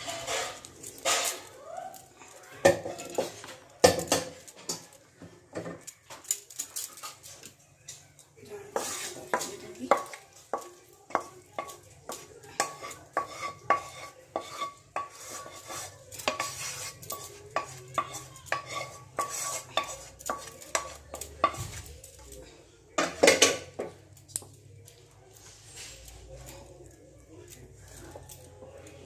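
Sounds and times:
spoon scraping and tapping bowl: 8.7s - 21.8s.

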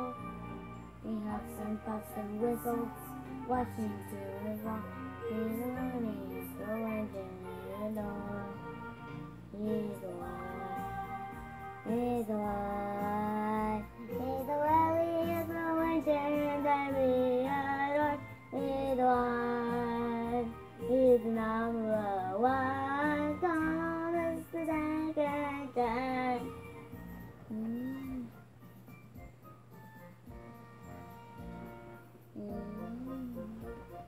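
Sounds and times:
boy singing: 0.0s - 0.2s, 1.0s - 8.7s, 9.5s - 11.2s, 11.8s - 26.6s, 27.5s - 28.4s, 32.4s - 33.7s.

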